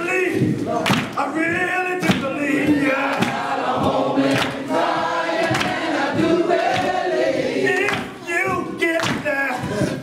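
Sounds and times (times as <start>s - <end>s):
congregation singing gospel song: 0.0s - 10.0s
sharp percussive hits: 2.0s - 7.2s.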